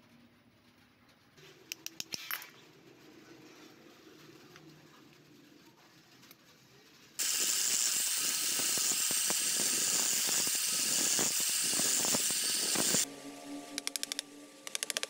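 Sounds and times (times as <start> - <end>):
angle grinder grinding wood: 7.2 - 13.1.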